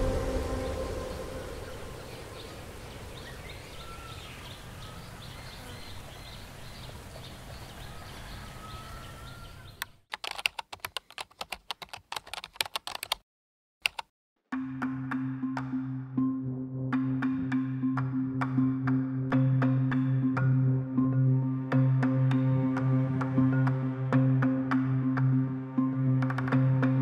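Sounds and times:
short rising calls: 0.0 - 5.0
sharp clicks: 9.8 - 13.2, 13.8 - 14.1.

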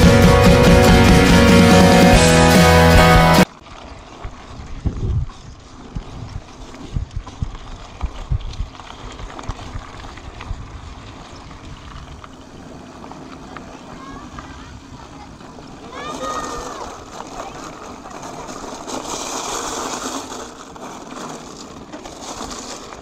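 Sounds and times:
music: 0.0 - 3.4
wind noise on microphone: 4.2 - 19.0.

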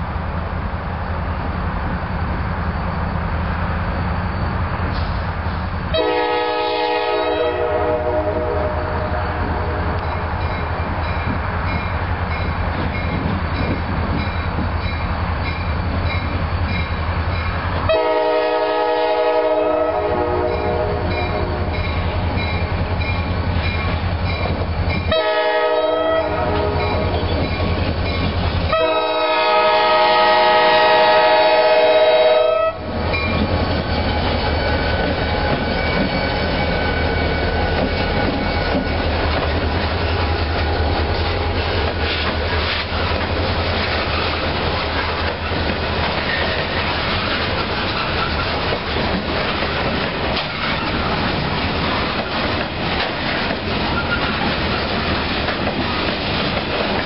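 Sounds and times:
diesel locomotive engine rumbling: 0.0 - 57.0
train air horn blasts: 5.9 - 10.0, 17.9 - 21.8, 25.1 - 27.2, 28.7 - 33.2
wheels clattering over rail joints: 33.0 - 57.0.

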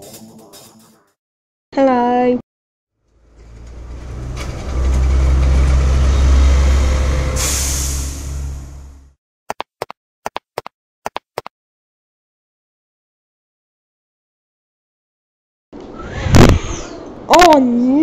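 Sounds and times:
bus engine rumble: 3.1 - 9.1
air brake hiss: 7.3 - 8.6
short clicks: 9.5 - 11.5.

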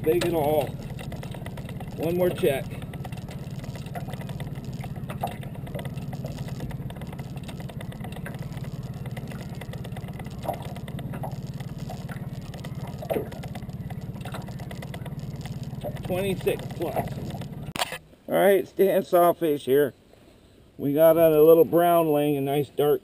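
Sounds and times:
outboard motor idling: 0.0 - 17.8.

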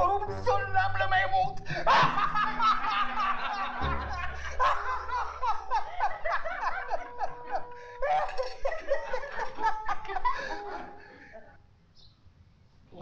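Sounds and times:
men laughing loudly: 1.6 - 11.6.

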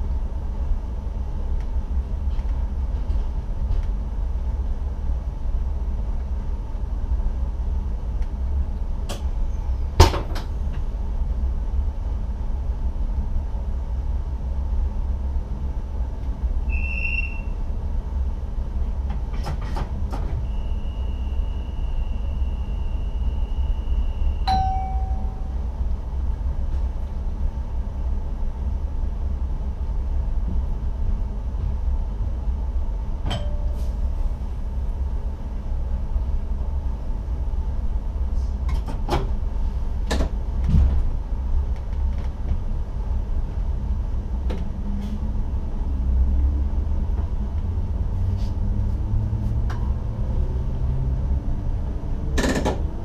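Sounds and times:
train low rumble with clicks: 0.0 - 53.0
brief lower electronic tone: 16.7 - 17.6, 20.4 - 25.6.

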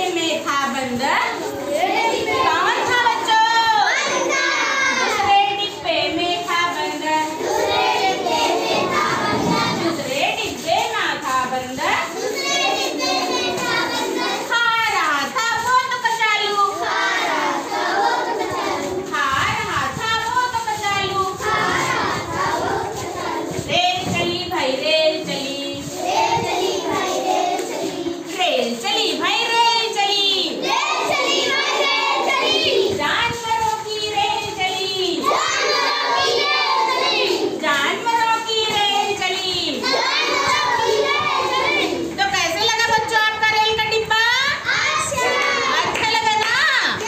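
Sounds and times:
children singing: 1.2 - 5.8, 6.7 - 10.0, 12.1 - 14.5, 16.7 - 19.1, 20.5 - 28.4, 29.0 - 37.7, 39.7 - 42.2, 44.6 - 46.0.

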